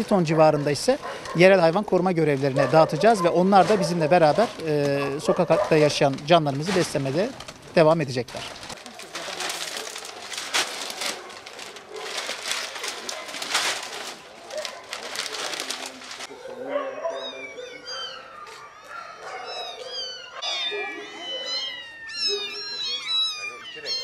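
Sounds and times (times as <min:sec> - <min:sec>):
plastic sacks rustling: 0:00.0 - 0:16.3
kittens meowing: 0:16.8 - 0:24.0.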